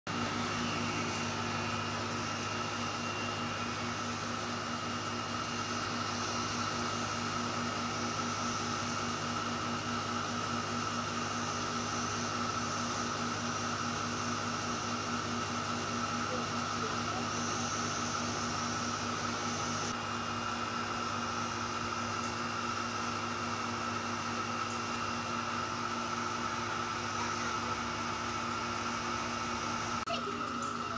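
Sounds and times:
mechanical hum: 0.1s - 30.9s.

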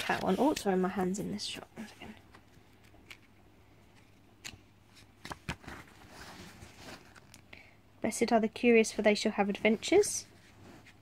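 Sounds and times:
card pages turning: 2.6s - 6.0s.

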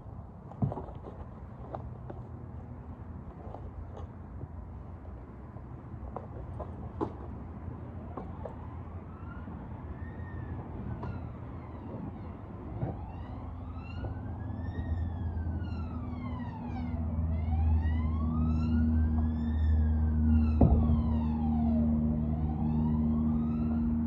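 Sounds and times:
low steady hum: 0.0s - 24.0s
siren wailing: 8.3s - 24.0s.

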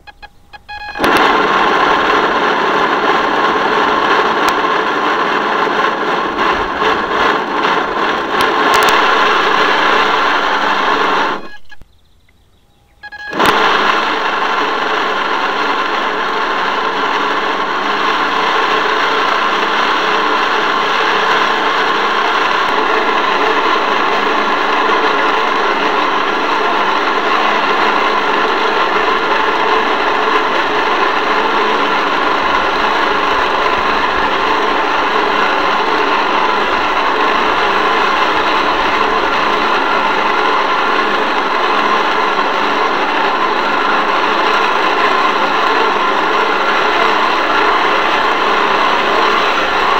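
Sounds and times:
boat motor humming: 0.0s - 49.9s.

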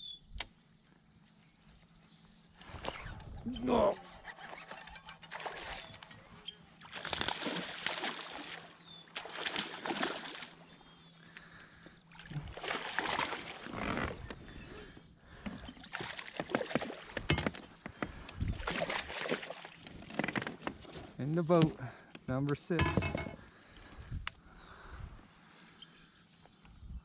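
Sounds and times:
fish splashing in water: 5.3s - 6.1s, 6.8s - 10.6s, 12.2s - 13.7s, 15.7s - 17.2s, 18.6s - 19.8s.

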